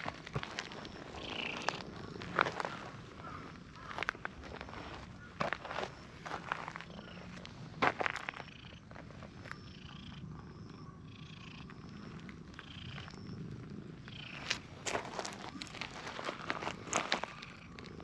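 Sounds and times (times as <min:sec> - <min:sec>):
cat purring: 0:09.6 - 0:14.5.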